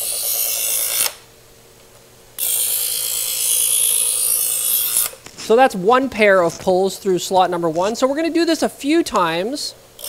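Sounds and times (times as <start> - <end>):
electric knife sharpener grinding: 0.0 - 1.2, 2.4 - 5.2
faint motor hum: 0.0 - 10.0.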